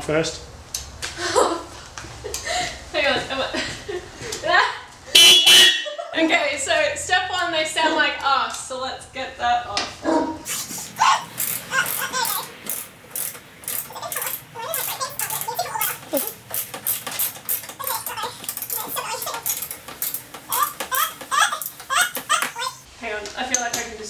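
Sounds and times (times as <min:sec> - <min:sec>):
laughter: 0:01.2 - 0:04.8, 0:05.8 - 0:06.3
screwdriver clicking on bolts: 0:11.3 - 0:22.6.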